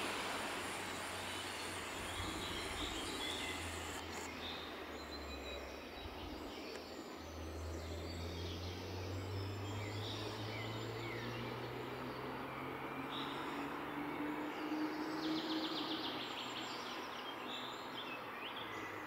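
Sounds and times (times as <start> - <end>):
low hum: 0.0 - 6.6
background hiss: 0.0 - 7.7
birds chirping and singing: 0.6 - 10.7.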